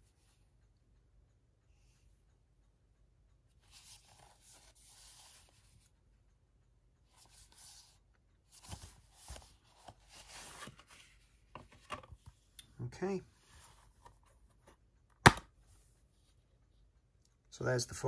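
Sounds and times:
plastic case clicks and knocks: 15.2 - 15.5.

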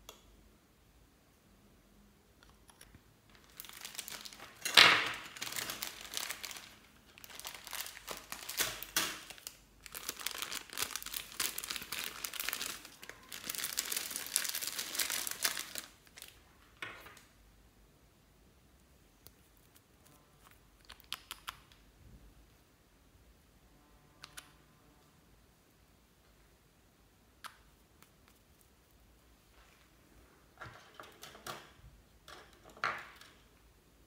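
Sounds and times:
plastic bag crinkling: 3.3 - 16.4.

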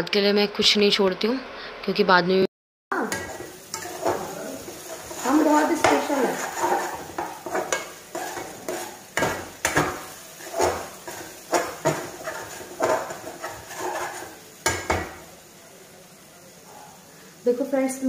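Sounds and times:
low sizzle: 0.3 - 18.0
metal spoon scraping a pan: 3.1 - 15.2.

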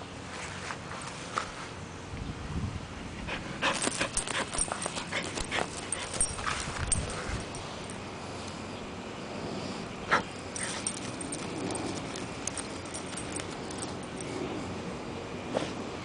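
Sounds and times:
dog digging in dirt: 3.3 - 7.6, 10.1 - 14.4.

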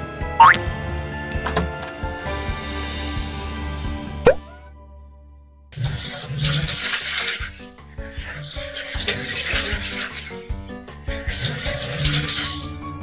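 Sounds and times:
music: 0.0 - 13.0
toy washing machine sloshing: 5.8 - 13.0.

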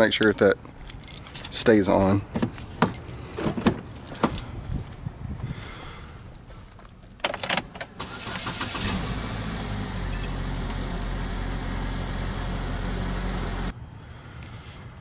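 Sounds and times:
keys rattling in ignition: 0.0 - 4.9
car engine starting and idling: 7.2 - 13.7.

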